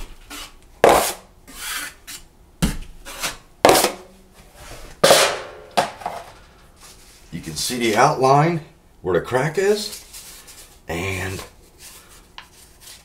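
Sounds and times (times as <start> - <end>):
taping knife scraping compound: 0.2 - 2.3, 11.7 - 13.0.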